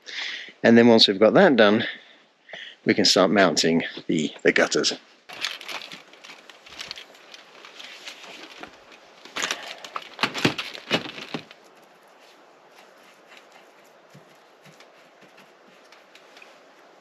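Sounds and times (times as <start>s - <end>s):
crinkling handling noises: 5.3s - 17.0s.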